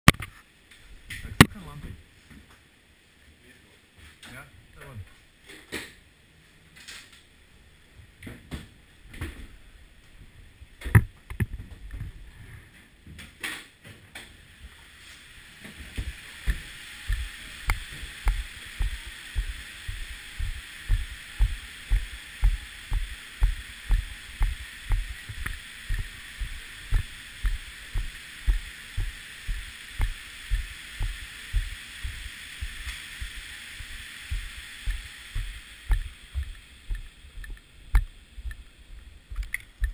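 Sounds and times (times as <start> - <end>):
steady hiss: 0.2 - 39.9
ski-boot footsteps on hard floor: 15.8 - 38.6, 39.3 - 39.9.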